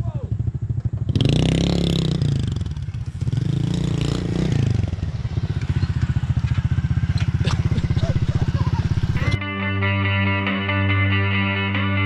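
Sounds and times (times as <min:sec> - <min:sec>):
small motorcycle engine revving: 0:00.4 - 0:09.4.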